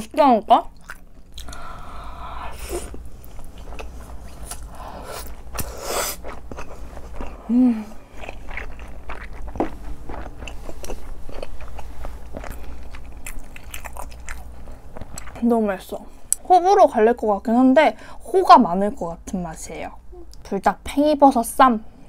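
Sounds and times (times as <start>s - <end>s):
biting and chewing: 2.9s - 15.4s
person humming: 7.4s - 8.0s.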